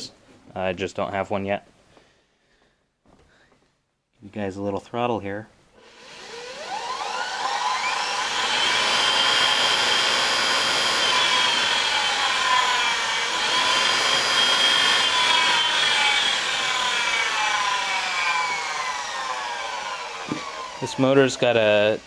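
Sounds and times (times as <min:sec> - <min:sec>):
electric motor whining: 0:05.8 - 0:22.0.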